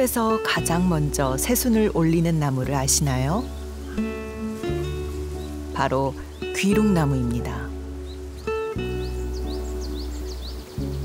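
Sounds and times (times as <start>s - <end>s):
background music of sustained chords: 0.0s - 11.0s
bird chirping high rising notes: 3.4s - 11.0s.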